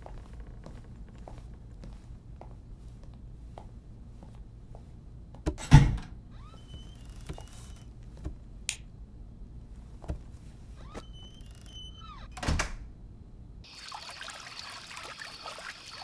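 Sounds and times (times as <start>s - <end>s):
wooden door opening and closing: 5.4s - 8.4s, 10.8s - 12.9s
fountain water trickling: 13.7s - 16.0s.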